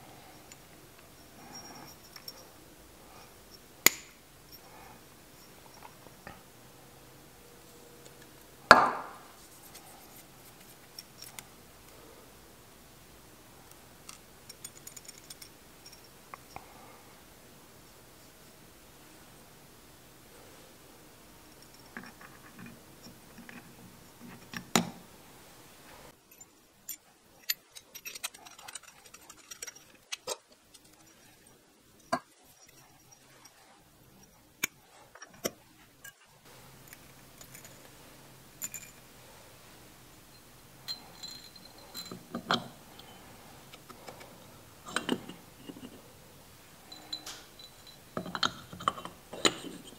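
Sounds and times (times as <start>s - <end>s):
small metal parts clicking: 14.0s - 16.6s, 26.2s - 37.9s, 38.6s - 39.0s, 46.9s - 49.9s.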